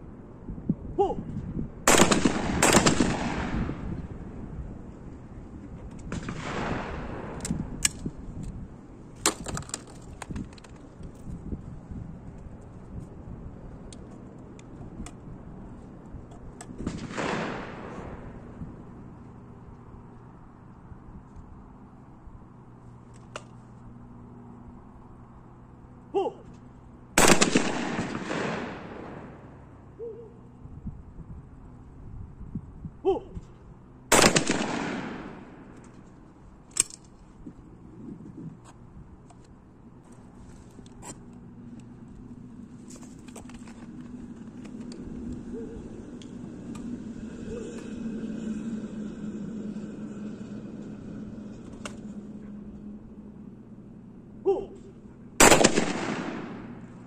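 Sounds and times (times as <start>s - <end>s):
person shouting: 0.9s - 1.3s, 26.1s - 26.5s, 33.0s - 33.4s, 54.4s - 54.9s
shotgun shot: 1.9s - 3.8s, 16.8s - 18.2s, 27.2s - 29.3s, 34.1s - 35.4s, 55.4s - 56.8s.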